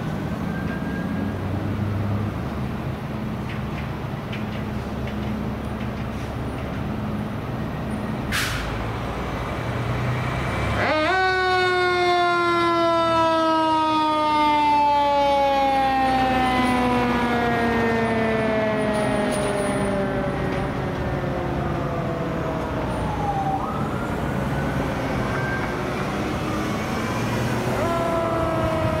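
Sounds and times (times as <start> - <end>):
short hiss: 8.3 - 8.8.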